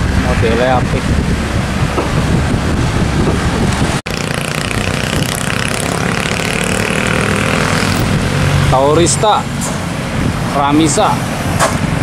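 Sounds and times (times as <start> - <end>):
bus diesel engines passing: 0.0 - 12.0
traffic noise: 0.0 - 12.0.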